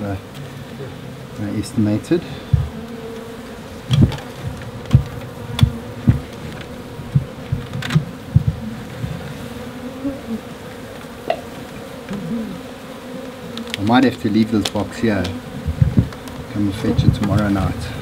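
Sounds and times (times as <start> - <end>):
bees buzzing: 0.0 - 18.0
low thumps near microphone: 2.4 - 2.8, 3.9 - 9.2, 15.5 - 18.0.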